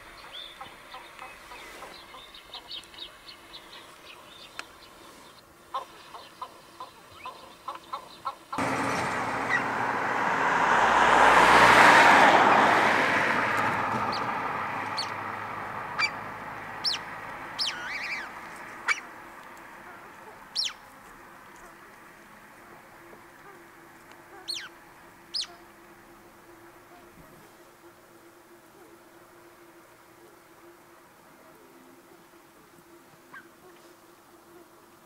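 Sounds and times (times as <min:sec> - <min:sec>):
small birds chirping: 0:00.0 - 0:08.6, 0:14.9 - 0:15.2, 0:15.9 - 0:19.2, 0:20.2 - 0:21.7, 0:24.3 - 0:25.7
clucking calls: 0:05.7 - 0:08.6, 0:15.9 - 0:19.2, 0:23.4 - 0:25.7
broad rushing noise: 0:08.6 - 0:18.6.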